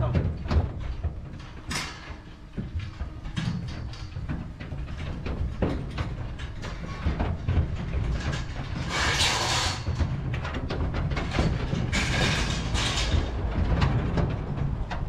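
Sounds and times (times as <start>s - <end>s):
hooves knocking on metal floor: 0.0s - 15.0s
low rumble: 9.8s - 15.0s.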